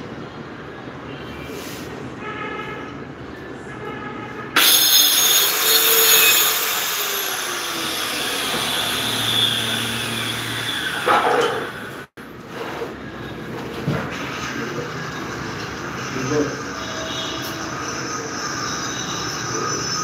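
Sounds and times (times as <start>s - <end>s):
circular saw cutting wooden board: 4.6s - 12.1s.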